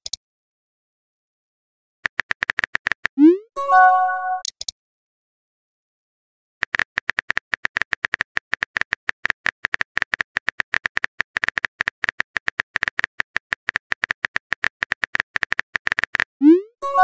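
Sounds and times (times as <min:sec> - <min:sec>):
rapid keyboard typing clicks: 0:02.0 - 0:03.2, 0:06.6 - 0:16.3.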